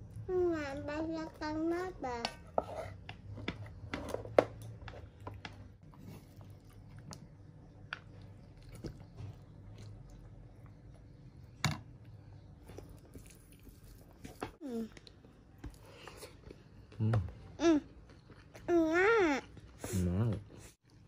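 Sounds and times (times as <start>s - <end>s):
chewing food: 4.8s - 11.4s, 12.0s - 17.2s, 17.8s - 18.7s.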